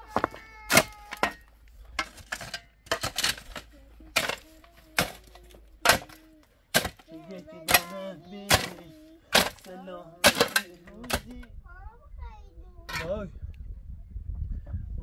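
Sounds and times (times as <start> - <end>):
shovel striking stony soil: 0.2 - 11.3.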